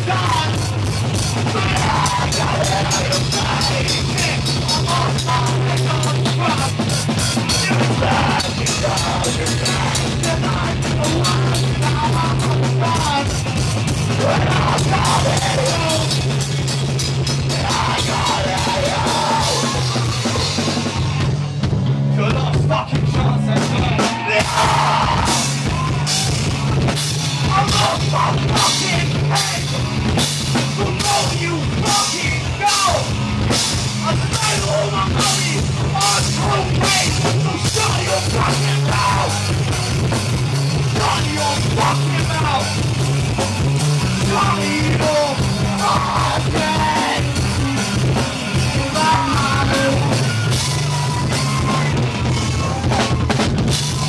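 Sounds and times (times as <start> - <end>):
pounding drum kit: 0.0 - 54.0
rock band playing loudly: 0.0 - 54.0.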